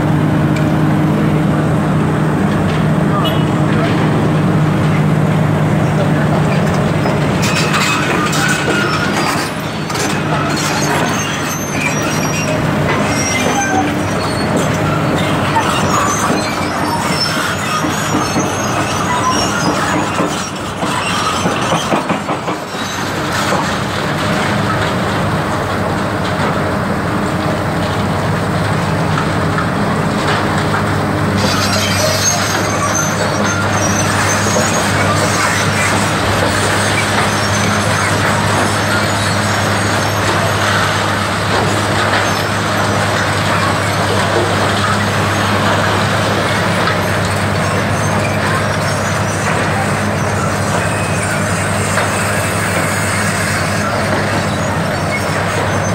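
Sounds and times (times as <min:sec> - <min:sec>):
excavator diesel engines running: 0:00.0 - 0:55.9
high-pitched metal squeals: 0:06.6 - 0:23.7, 0:31.4 - 0:55.9.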